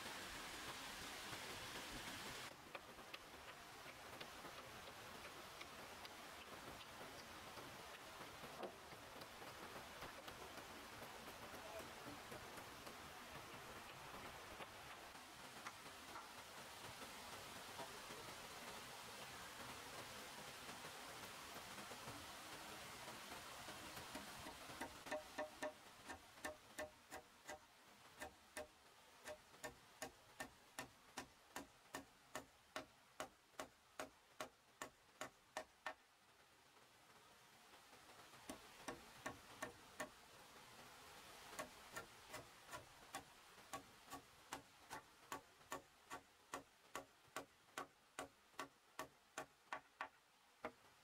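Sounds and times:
rapid sharp tapping: 0:19.9 - 0:36.0, 0:38.0 - 0:40.2, 0:41.2 - 0:51.0.

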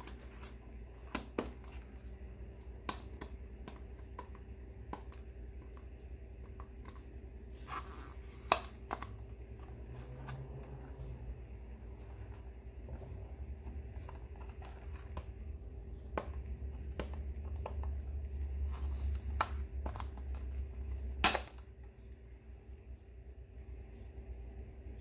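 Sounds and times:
plastic scrape: 0:07.5 - 0:15.3.

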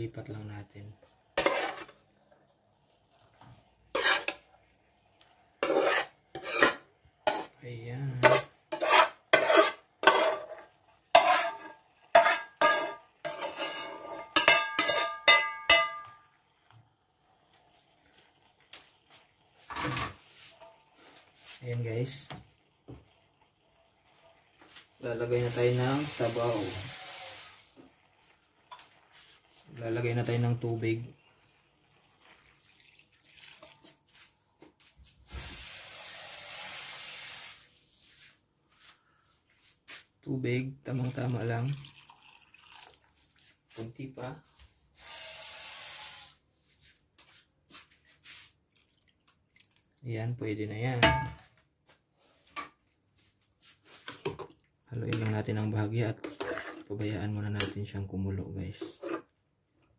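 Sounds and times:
metal utensil scraping frying pan: 0:01.4 - 0:02.0, 0:03.9 - 0:04.5, 0:05.6 - 0:07.6, 0:08.2 - 0:16.2, 0:56.2 - 0:57.0, 0:58.8 - 0:59.3
utensil knocking on metal pot: 0:14.4 - 0:16.2
water pouring into pot: 0:21.0 - 0:34.2, 0:35.4 - 0:37.7, 0:40.8 - 0:43.6, 0:48.7 - 0:50.0.

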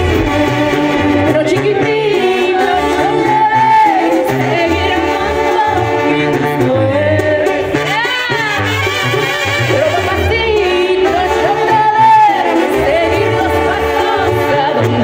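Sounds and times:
drums: 0:00.0 - 0:04.5
banda music through a loudspeaker: 0:00.0 - 0:15.0
clarinets and brass: 0:00.0 - 0:15.0
pulsing bass line: 0:00.0 - 0:15.0
woman singing: 0:01.2 - 0:09.0, 0:09.7 - 0:15.0.

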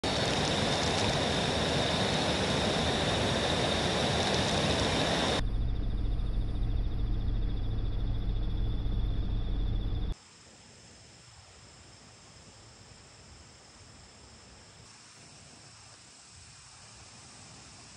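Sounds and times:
high insect buzz: 0:00.0 - 0:05.4
low pulsing rumble: 0:00.1 - 0:10.2
faint high insect chirping: 0:00.1 - 0:17.9.

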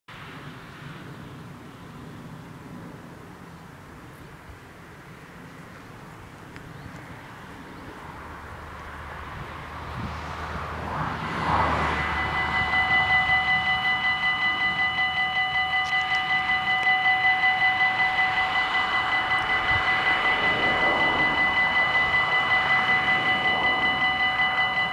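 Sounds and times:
faint rushing noise: 0:00.1 - 0:24.9
level crossing warning bells: 0:10.7 - 0:24.9.

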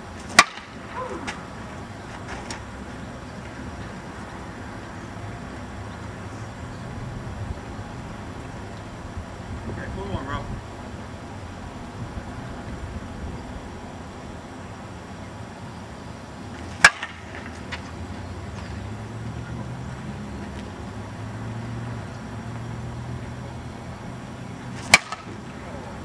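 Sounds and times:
bat pinging on ball: 0:00.3 - 0:01.4, 0:16.8 - 0:17.4, 0:24.8 - 0:25.4.

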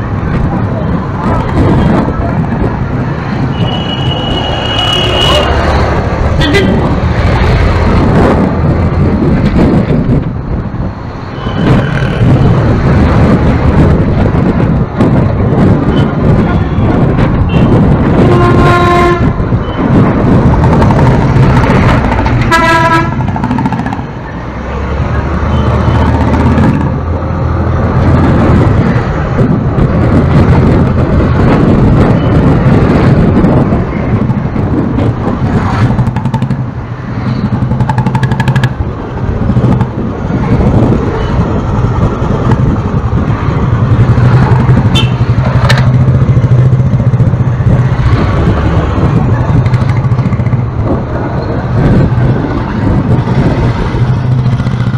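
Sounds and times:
road rumble: 0:00.0 - 0:54.9
vehicle horns honking: 0:03.5 - 0:05.6, 0:17.5 - 0:19.8, 0:22.5 - 0:23.2, 0:44.9 - 0:45.3
motorbike engine: 0:37.4 - 0:40.1, 0:53.1 - 0:54.9.

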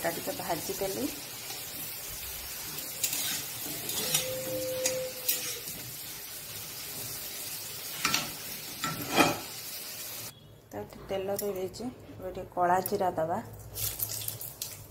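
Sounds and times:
potatoes sizzling in hot oil: 0:00.0 - 0:10.3
metal spatula scraping a pan: 0:02.8 - 0:06.1, 0:07.8 - 0:09.6.

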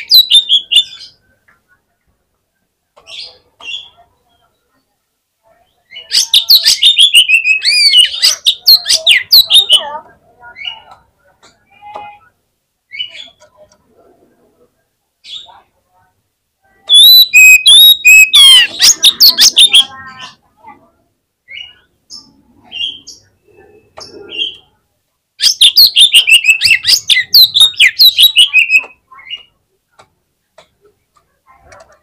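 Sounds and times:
magpie-robin singing: 0:00.0 - 0:01.2, 0:05.6 - 0:11.0, 0:16.9 - 0:20.4, 0:21.5 - 0:24.7, 0:25.4 - 0:29.6.

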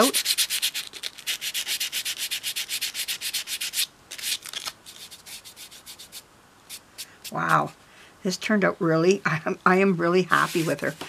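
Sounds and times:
hand sanding rasping strokes: 0:00.0 - 0:03.9, 0:04.9 - 0:07.4.

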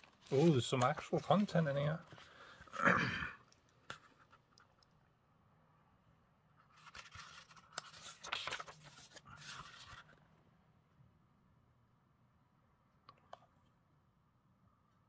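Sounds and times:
book pages turning: 0:00.0 - 0:02.6, 0:06.6 - 0:10.2.

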